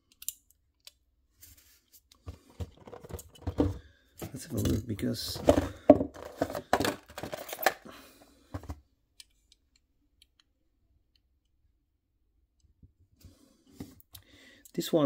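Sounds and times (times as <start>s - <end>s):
light clicks of metal model car: 0.1s - 1.0s
plastic packaging crinkling: 6.2s - 7.9s.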